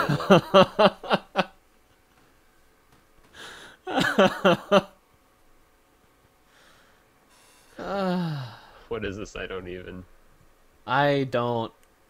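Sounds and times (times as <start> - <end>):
person laughing: 0.0 - 1.5, 3.9 - 4.9.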